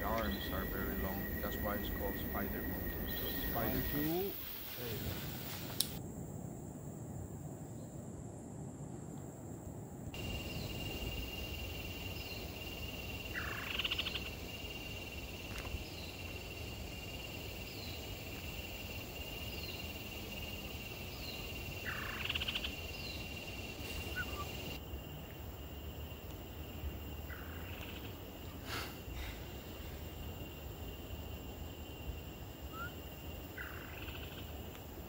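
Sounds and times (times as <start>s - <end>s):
faint chirps: 0.0s - 5.5s, 10.2s - 24.8s, 32.6s - 34.5s
high insect drone: 0.0s - 35.0s
rising rattling animal call: 23.8s - 24.8s.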